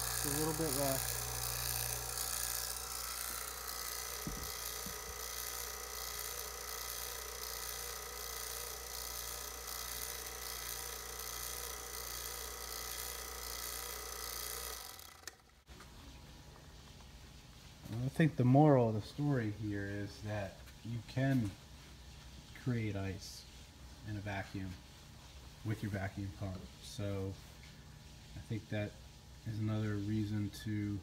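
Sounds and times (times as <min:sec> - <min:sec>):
vacuum pump humming and whining: 0:00.0 - 0:18.3.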